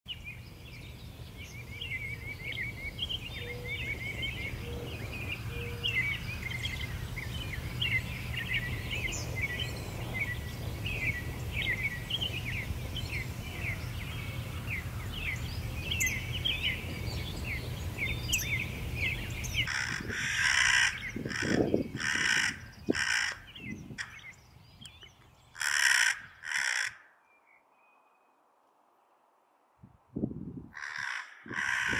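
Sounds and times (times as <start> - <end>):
small birds twittering: 0.1 - 28.4
crow cawing harshly: 19.7 - 23.4, 25.6 - 27.2, 30.8 - 31.9.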